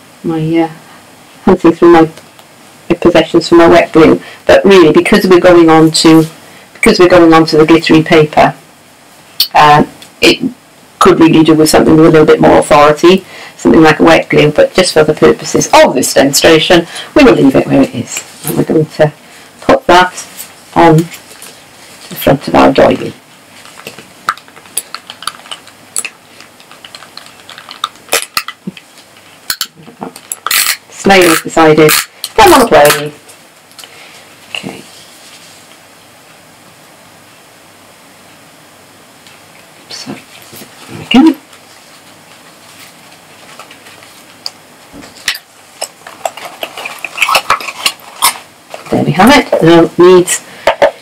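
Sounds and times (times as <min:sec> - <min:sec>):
cardstock crinkling and clicking: 0:23.8 - 0:28.9.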